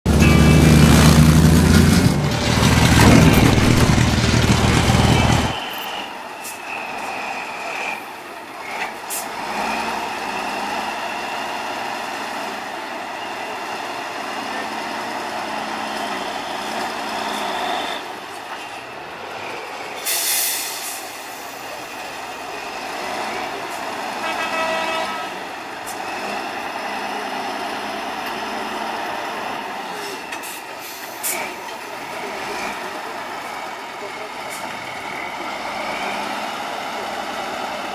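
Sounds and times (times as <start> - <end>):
high whine: 0.1 - 5.9
diesel truck engine running: 0.1 - 20.0.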